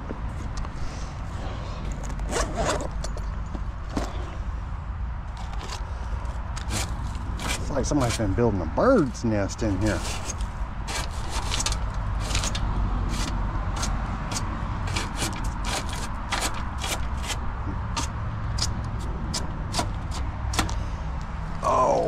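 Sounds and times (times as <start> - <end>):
clicks knocks and scrapes of handling: 5.3 - 8.3, 9.8 - 20.8.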